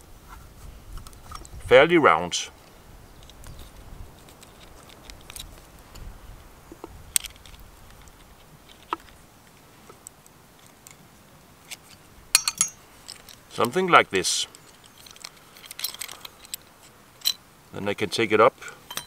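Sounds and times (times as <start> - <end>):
pliers and wire clicking on metal: 11.6 - 13.8, 14.5 - 17.4.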